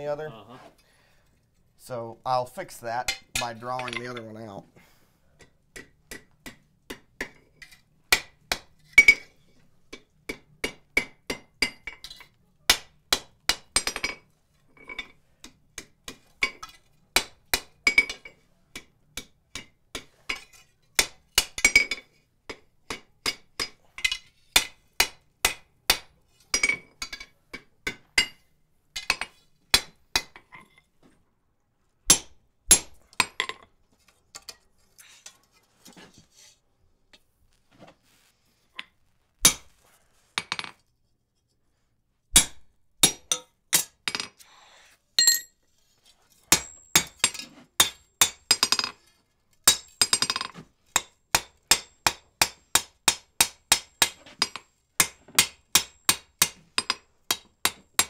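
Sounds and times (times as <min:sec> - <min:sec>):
hammer striking chisel: 0:05.4 - 0:07.5, 0:08.1 - 0:09.3, 0:09.9 - 0:14.2, 0:15.0 - 0:28.4, 0:39.4 - 0:39.7, 0:42.3 - 0:44.2, 0:46.5 - 0:49.0, 0:49.6 - 0:58.0
hammer striking iron on anvil: 0:42.4 - 0:43.9, 0:46.5 - 0:48.9, 0:49.7 - 0:58.0.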